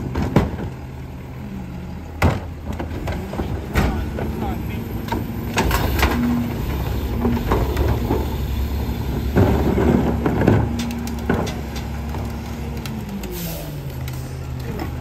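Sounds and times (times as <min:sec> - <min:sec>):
garbage truck engine drone: 0:00.0 - 0:15.0
recyclables clattering: 0:07.2 - 0:15.0.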